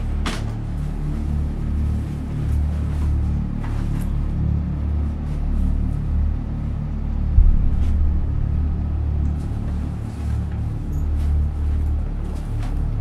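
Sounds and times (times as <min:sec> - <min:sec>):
low rumbling film score drone: 0:00.0 - 0:13.0
low thump: 0:07.2 - 0:09.9.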